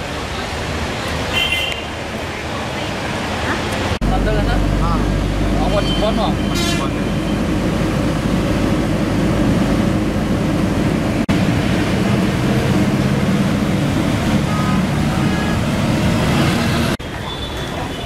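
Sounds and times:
motorbikes and buses passing: 0.0s - 18.0s
vehicle road noise in traffic: 0.0s - 18.0s.

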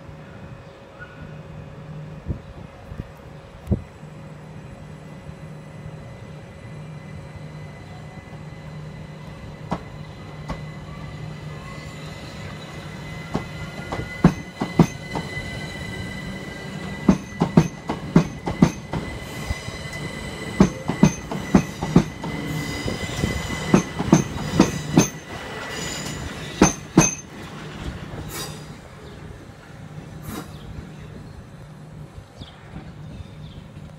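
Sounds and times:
electric train low hum: 0.0s - 33.9s
wheels clacking over rail joints: 16.7s - 19.2s, 19.9s - 28.7s.

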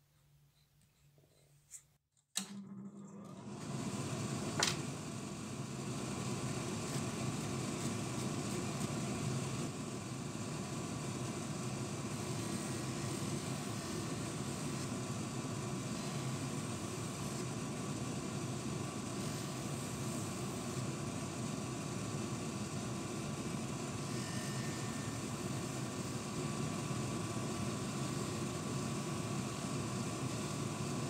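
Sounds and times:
polishing machine whirring: 5.5s - 28.4s.

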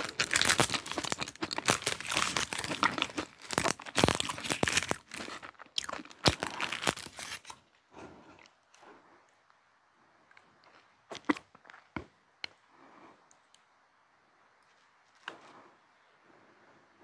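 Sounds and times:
paper liner crinkling and tearing: 0.0s - 7.6s.

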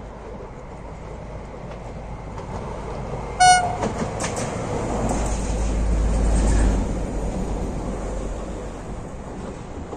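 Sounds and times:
train rumble and rail noise: 0.0s - 9.9s
train horn blast: 3.4s - 3.9s.

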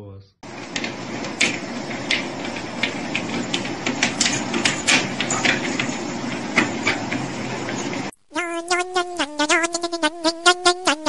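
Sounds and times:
treadmill motor whirring: 0.4s - 8.1s
dog paws tapping on belt: 0.6s - 8.1s.

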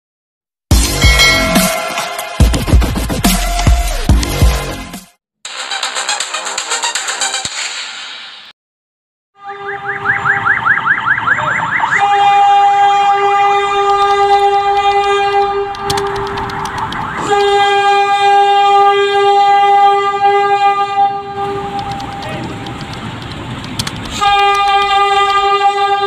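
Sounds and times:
train air horn blasts: 9.4s - 9.9s, 12.0s - 16.4s, 17.2s - 22.6s, 24.1s - 26.0s.

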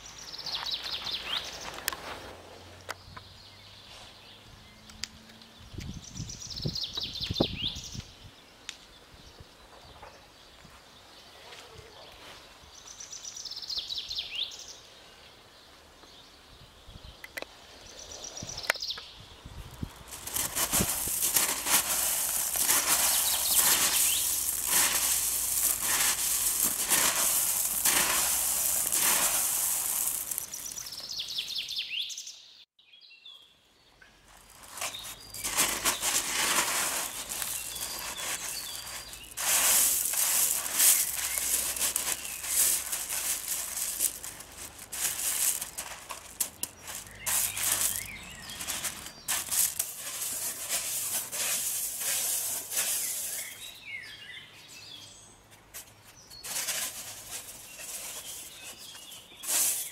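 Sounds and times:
birds chirping: 0.0s - 1.9s, 2.8s - 32.6s, 33.3s - 59.9s
pebbles crunching and clattering: 19.9s - 31.2s, 34.3s - 53.7s, 56.4s - 59.9s.

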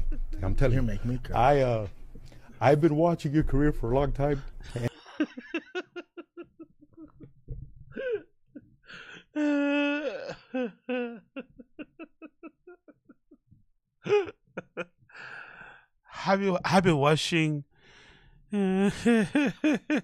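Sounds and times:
man laughing breathily: 4.7s - 13.5s, 14.1s - 15.8s, 18.6s - 20.0s.

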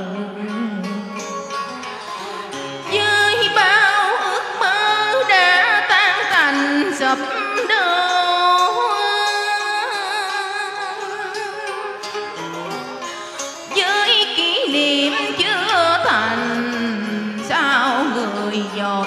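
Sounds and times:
woman singing with vibrato: 0.0s - 1.5s, 2.2s - 12.0s, 13.7s - 19.0s
instrumental backing music: 0.0s - 19.0s.

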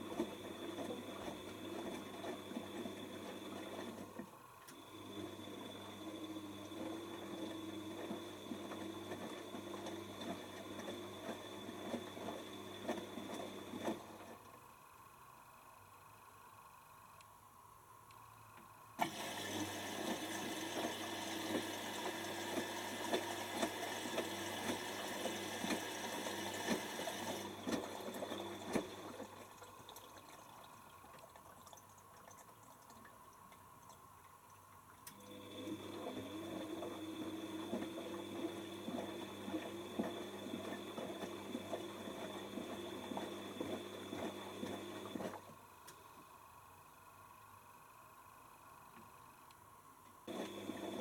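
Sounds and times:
water running into washing machine: 0.0s - 4.2s, 4.8s - 14.3s, 19.0s - 33.9s, 34.5s - 45.5s, 50.3s - 51.0s.

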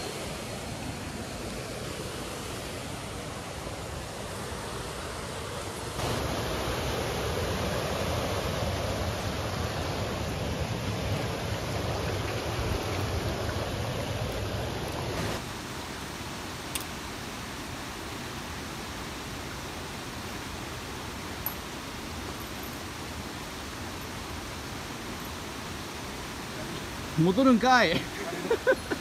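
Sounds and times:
river water rushing: 0.0s - 29.0s.

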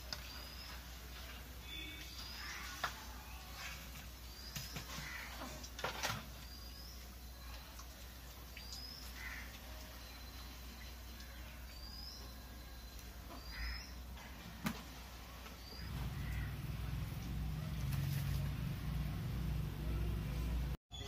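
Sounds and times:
lower rounder bird calls: 8.6s - 14.1s, 15.6s - 16.8s.

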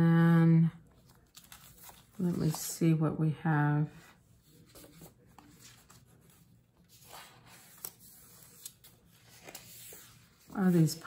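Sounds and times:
paper sheets rustling: 1.0s - 2.8s, 4.4s - 11.0s.

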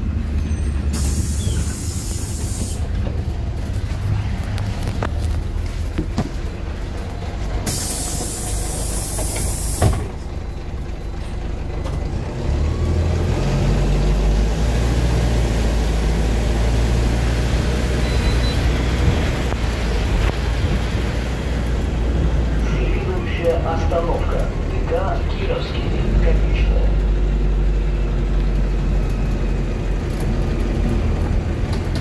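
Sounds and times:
bus engine pulling away: 0.0s - 32.0s
pneumatic air hiss: 0.9s - 2.8s, 7.6s - 10.0s.

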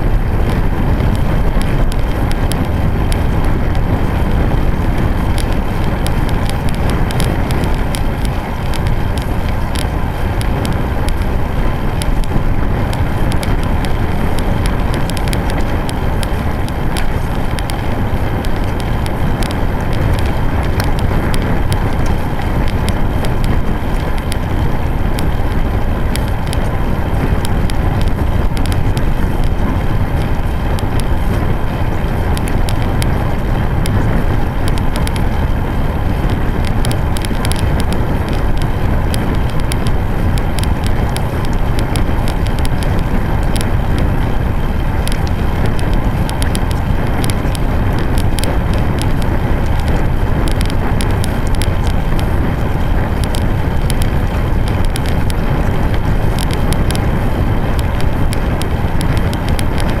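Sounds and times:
tyre noise on asphalt: 0.0s - 60.0s
wind on microphone: 0.0s - 60.0s.

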